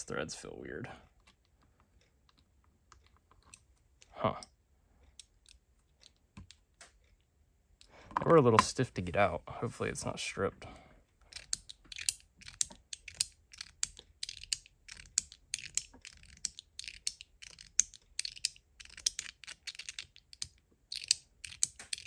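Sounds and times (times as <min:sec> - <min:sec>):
fidget toy clicking: 0:11.3 - 0:22.0.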